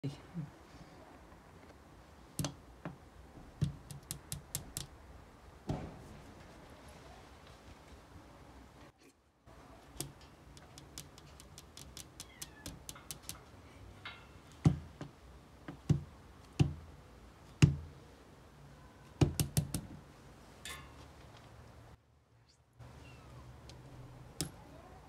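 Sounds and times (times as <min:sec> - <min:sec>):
loud thumps: 0:05.6 - 0:06.7
kittens meowing faintly: 0:12.2 - 0:12.9, 0:22.4 - 0:23.6.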